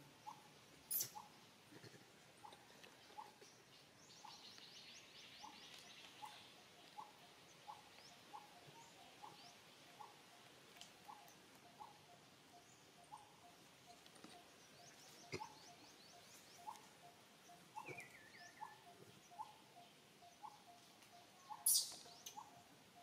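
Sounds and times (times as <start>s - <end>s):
high bird chirps: 21.4s - 22.6s.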